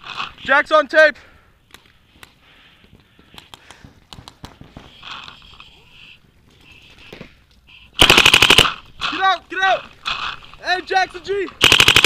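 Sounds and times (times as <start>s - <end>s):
rapid paintball shots burst: 8.0s - 8.8s, 11.6s - 12.0s.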